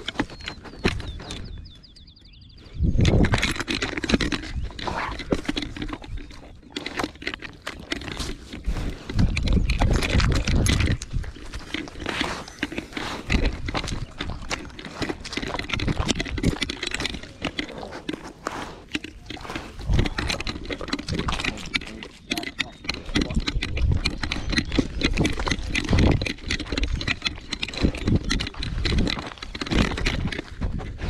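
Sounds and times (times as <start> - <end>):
crunching and rustling: 0.0 - 1.9, 2.6 - 31.0
dog sniffing: 11.6 - 15.8, 17.6 - 22.1.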